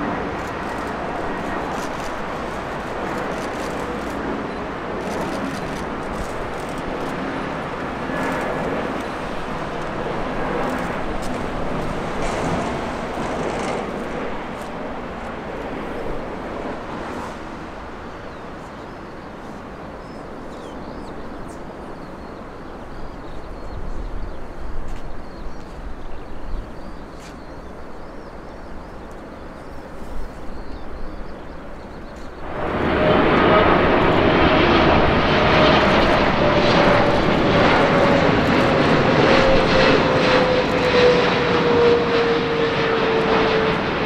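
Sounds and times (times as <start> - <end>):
jet airliner engines roaring: 0.0 - 44.0.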